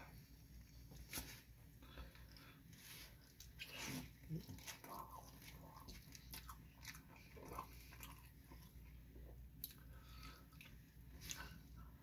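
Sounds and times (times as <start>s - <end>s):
chewing food: 3.2s - 11.9s.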